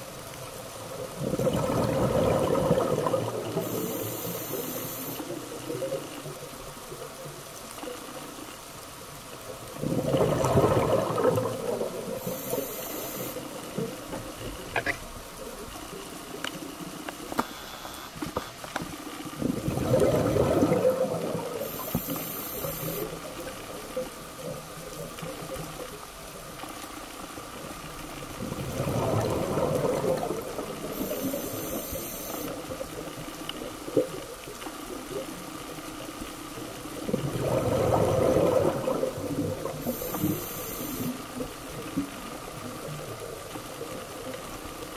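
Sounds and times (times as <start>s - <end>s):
bubbling underwater exhalations: 1.1s - 4.1s, 9.7s - 12.4s, 19.4s - 23.2s, 28.4s - 31.8s, 37.0s - 41.2s
regulator hissing inhale: 3.6s - 5.3s, 12.2s - 13.6s, 21.6s - 23.2s, 30.9s - 32.6s, 39.8s - 41.3s.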